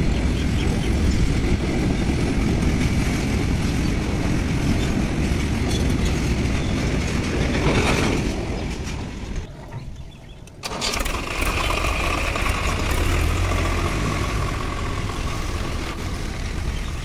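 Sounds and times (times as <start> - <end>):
diesel tractor engine: 9.2 - 17.0.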